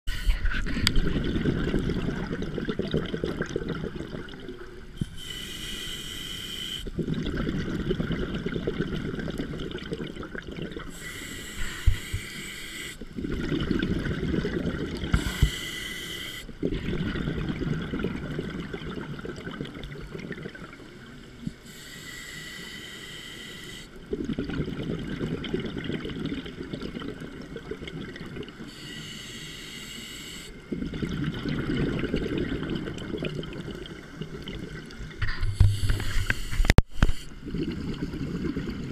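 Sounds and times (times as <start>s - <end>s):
bubbling exhaled air: 0.1s - 20.8s, 23.0s - 38.9s
regulator hissing inhales: 5.1s - 6.9s, 10.9s - 13.0s, 15.2s - 16.5s, 21.6s - 23.9s, 28.7s - 30.6s.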